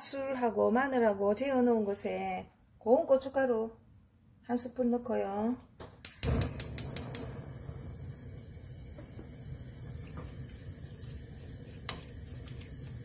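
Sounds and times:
pork sizzling in a pot: 0:06.0 - 0:13.0.

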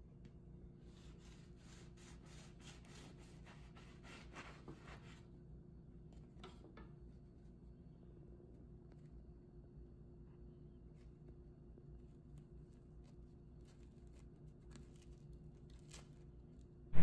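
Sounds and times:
knife sawing through bread crust: 0:00.9 - 0:05.2.

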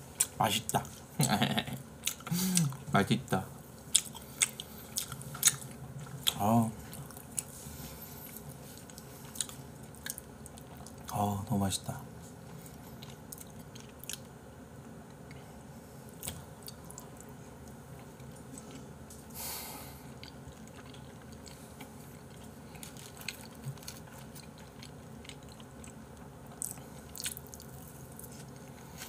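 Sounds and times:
wet chewing: 0:03.8 - 0:07.6, 0:08.2 - 0:11.2, 0:20.2 - 0:28.7.

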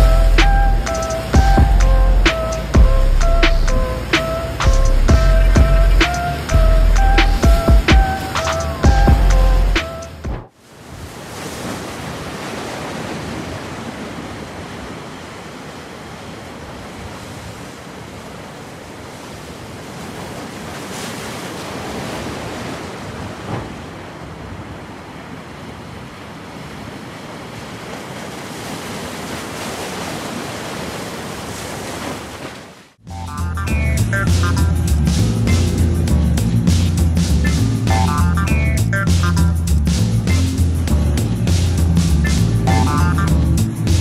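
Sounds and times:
water rushing in whirlpools: 0:00.0 - 0:44.0.

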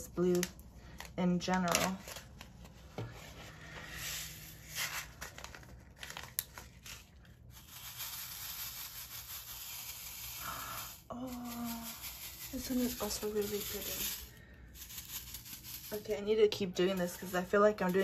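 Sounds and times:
plastic bag crinkling: 0:04.4 - 0:18.0.

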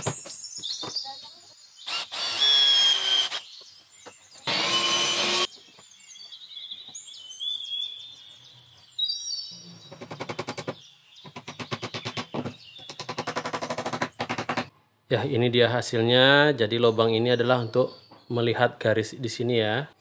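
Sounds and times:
birds chirping: 0:00.0 - 0:20.0
electric drill boring into wood: 0:01.9 - 0:03.4, 0:04.4 - 0:05.5.

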